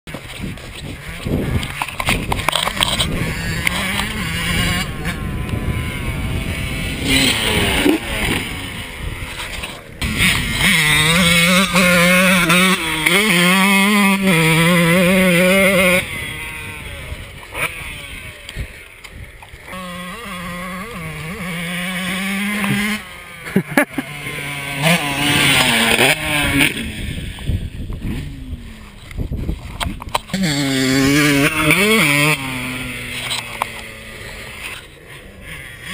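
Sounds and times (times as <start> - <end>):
dirt bike engine revving: 0.1 - 35.9.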